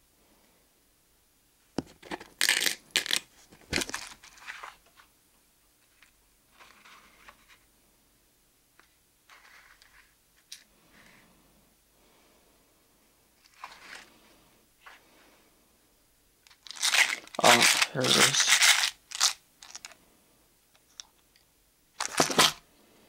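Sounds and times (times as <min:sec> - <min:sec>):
soft rustles and clicks: 0:03.2 - 0:07.7, 0:13.4 - 0:15.3.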